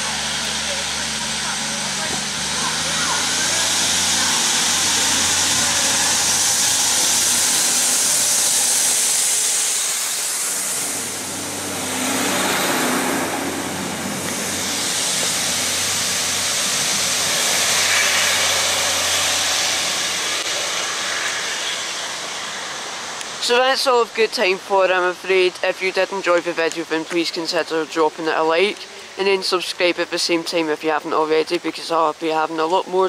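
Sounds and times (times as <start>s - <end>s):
diesel train engine passing: 0.0s - 26.9s
steady hiss: 0.0s - 33.0s.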